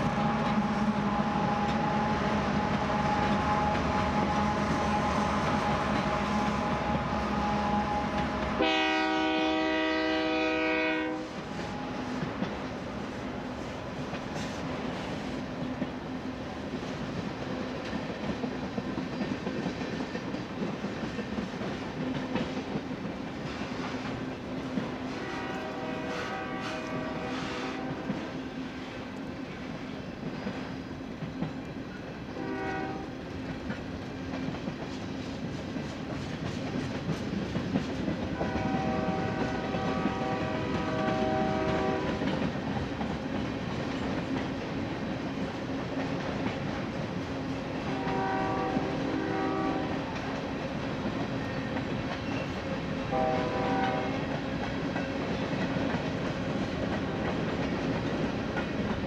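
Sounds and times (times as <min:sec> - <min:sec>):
locomotive air horn blasts: 0:00.0 - 0:12.1, 0:25.0 - 0:28.1, 0:32.4 - 0:33.2, 0:38.4 - 0:42.2, 0:47.9 - 0:50.0, 0:53.1 - 0:54.3
moving train rumble: 0:00.0 - 0:59.0.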